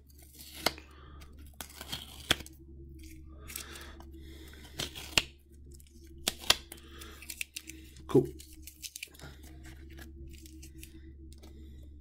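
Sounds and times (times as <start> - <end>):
tape being peeled off plastic: 0.1 - 0.8, 1.4 - 3.8, 4.6 - 11.0.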